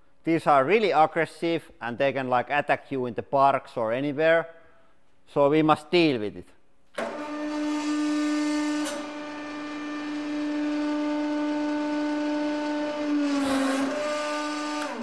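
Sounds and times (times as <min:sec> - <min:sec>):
hydraulic press hum: 0:06.9 - 0:15.0.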